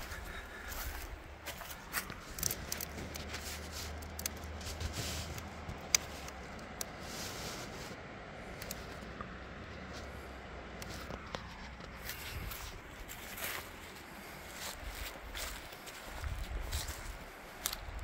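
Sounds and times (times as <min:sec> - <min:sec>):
footsteps: 0:00.0 - 0:08.0, 0:10.8 - 0:18.0
low steady rumble: 0:00.0 - 0:18.0
rustling from handling: 0:01.6 - 0:08.0.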